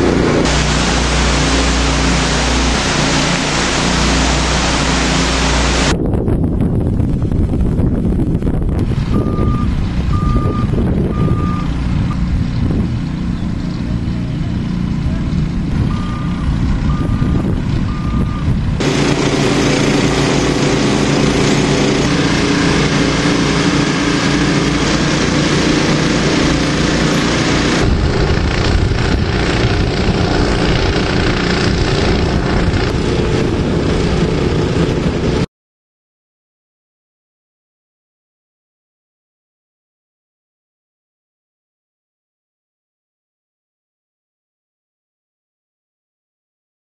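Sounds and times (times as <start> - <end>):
diesel engine running: 0.0 - 6.2, 7.0 - 35.5
steady hum: 0.0 - 8.8, 18.5 - 35.5
reversing alarm beeps: 9.1 - 12.2, 15.9 - 18.5.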